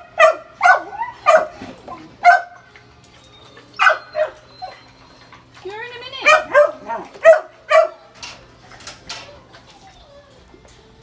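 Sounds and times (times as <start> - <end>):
dog barking: 0.2 - 1.6, 2.2 - 2.6, 3.8 - 4.4, 6.2 - 8.0.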